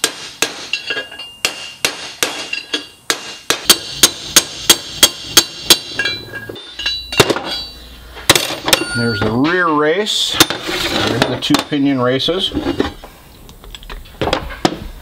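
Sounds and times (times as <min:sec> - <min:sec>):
hammer striking steel: 0:00.0 - 0:10.6.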